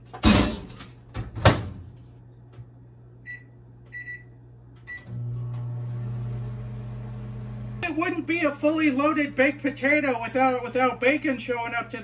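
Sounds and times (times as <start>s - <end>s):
microwave oven humming: 1.1s - 12.0s
keypad beeps: 3.3s - 4.3s.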